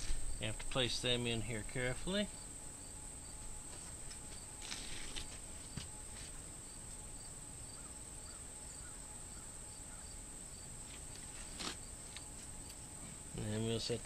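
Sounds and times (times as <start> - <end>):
crickets chirping: 0.0 - 14.0
rustle of handled parts: 3.7 - 7.0, 10.8 - 13.2.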